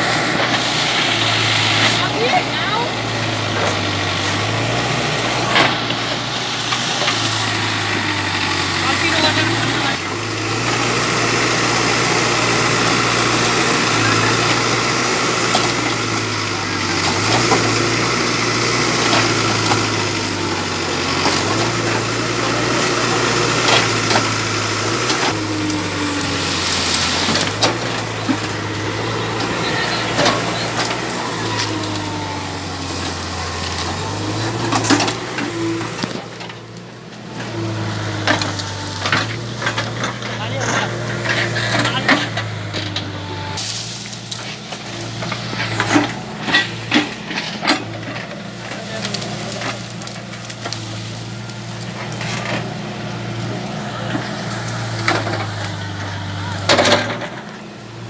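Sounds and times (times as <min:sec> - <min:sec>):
diesel engine under hydraulic load: 0:00.0 - 0:58.0
bamboo stems cracking and snapping: 0:30.2 - 0:39.8, 0:43.6 - 0:52.4.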